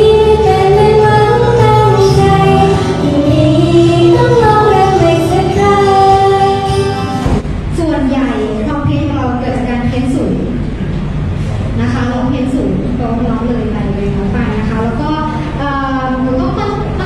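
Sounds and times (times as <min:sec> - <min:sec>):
woman singing pop song: 0:00.0 - 0:07.2.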